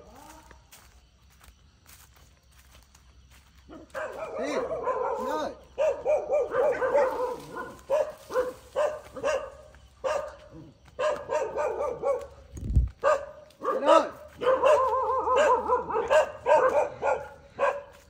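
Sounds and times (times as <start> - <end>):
dog barking and yelping: 3.7 - 18.0.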